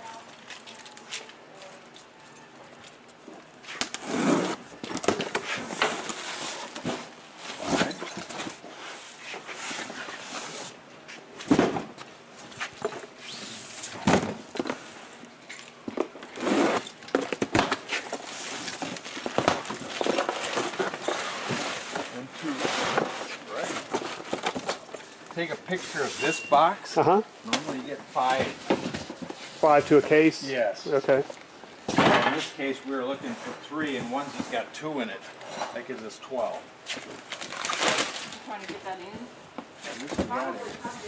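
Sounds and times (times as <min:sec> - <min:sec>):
cardboard carton being unpacked: 0:17.6 - 0:24.6, 0:37.0 - 0:38.4.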